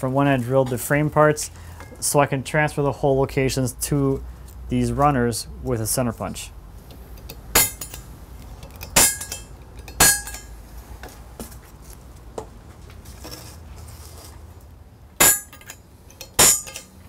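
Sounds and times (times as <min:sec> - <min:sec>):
steel clinking: 0:07.2 - 0:10.6, 0:15.2 - 0:17.0
center punch metallic strikes: 0:07.5 - 0:08.0, 0:10.0 - 0:10.5, 0:15.2 - 0:15.7, 0:16.4 - 0:16.9.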